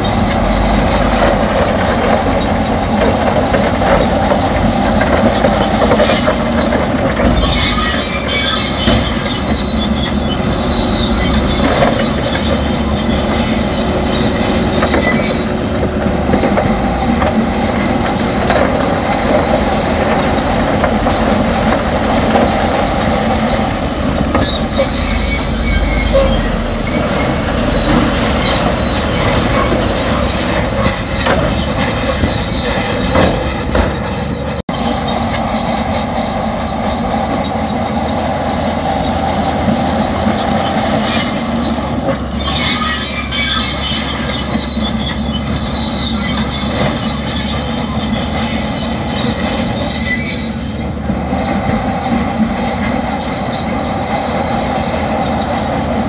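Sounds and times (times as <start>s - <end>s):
diesel engine running: 0.0s - 41.6s
steel tracks clanking: 0.0s - 56.0s
high track squeals: 5.3s - 56.0s.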